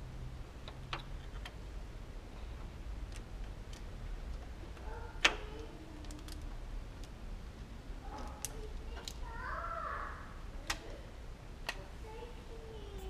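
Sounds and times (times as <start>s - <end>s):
plastic parts clicking and snapping: 3.0s - 7.2s, 8.1s - 9.2s, 10.6s - 11.0s.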